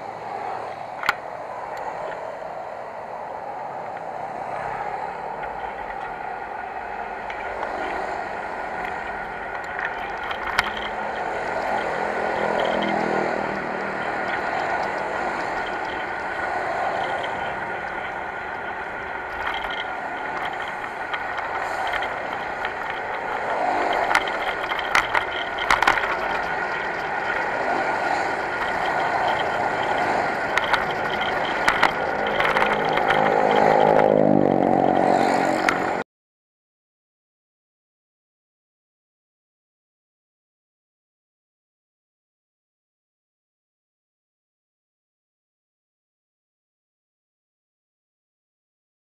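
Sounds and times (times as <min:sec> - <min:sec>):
road and wind noise: 0:00.0 - 0:36.0
sharp rattles and knocks: 0:03.9 - 0:36.0
motorcycle engine running: 0:08.9 - 0:36.0.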